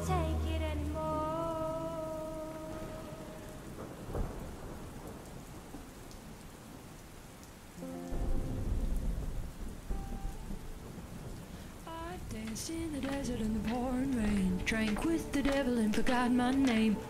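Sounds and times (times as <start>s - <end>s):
held music chord: 0.0s - 3.8s
soft music notes: 0.0s - 3.9s, 7.8s - 11.0s, 12.0s - 17.0s
thunder clap: 0.0s - 6.3s, 7.8s - 17.0s
low thunder rumble: 0.0s - 6.8s, 8.1s - 17.0s
heavy rain: 0.0s - 17.0s.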